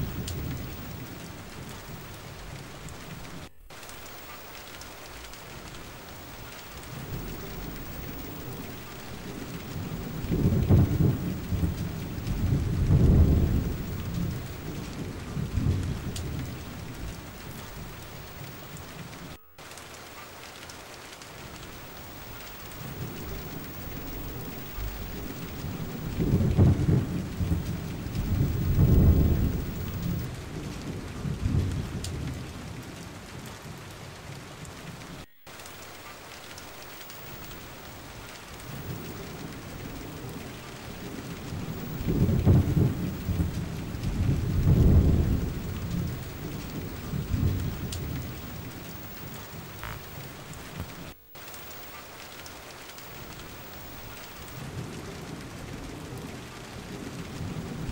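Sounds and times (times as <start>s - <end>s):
low rumbles of thunder: 0.0s - 19.4s, 21.4s - 33.4s, 36.4s - 52.2s, 52.8s - 57.9s
steady rain: 0.0s - 57.9s.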